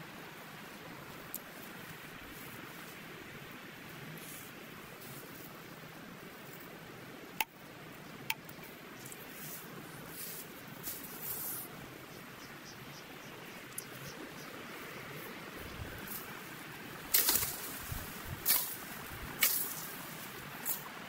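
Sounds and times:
faint outdoor hiss: 0:00.0 - 0:21.0
rustling of grass and weeds: 0:00.0 - 0:21.0
short swishes through vegetation: 0:09.2 - 0:11.8, 0:15.7 - 0:21.0.

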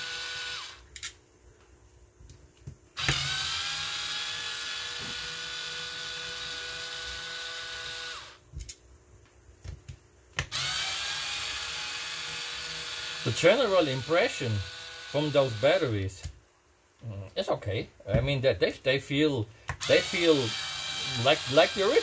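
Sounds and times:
cordless screwdriver motor whining: 0:00.0 - 0:00.8, 0:03.0 - 0:08.4, 0:10.5 - 0:15.9, 0:19.8 - 0:22.0.

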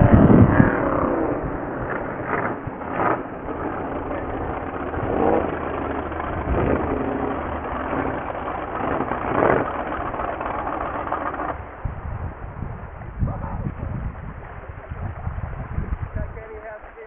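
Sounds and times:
racing boat engines: 0:00.0 - 0:17.0.

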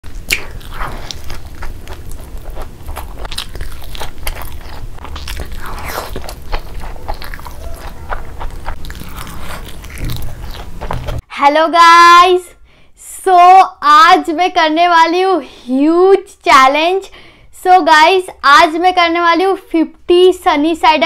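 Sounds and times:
chewing crunches: 0:00.0 - 0:11.2
wet mouth sounds: 0:00.0 - 0:11.2
steady low hum: 0:00.0 - 0:11.5.

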